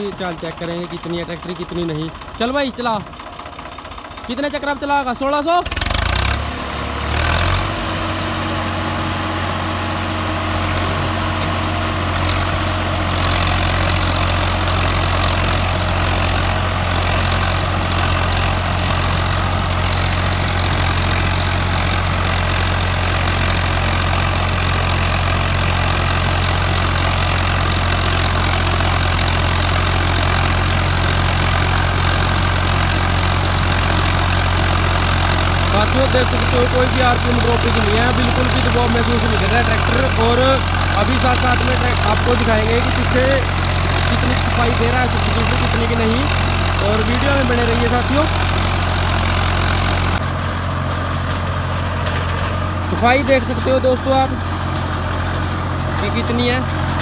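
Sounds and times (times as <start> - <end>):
tractor diesel engine under load: 0.0 - 57.0
seeder rotor rushing: 10.5 - 50.2.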